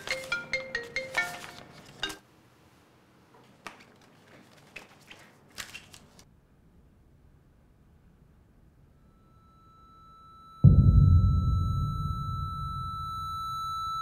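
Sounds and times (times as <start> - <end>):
light melody with bright notes: 0.0 - 2.2
notebook being handled: 0.0 - 2.2, 3.4 - 6.2.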